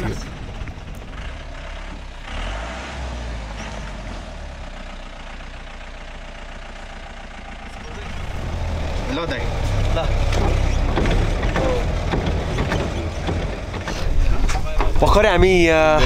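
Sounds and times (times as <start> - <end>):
car engine running: 0.0 - 16.0
tyre and road noise: 0.0 - 16.0.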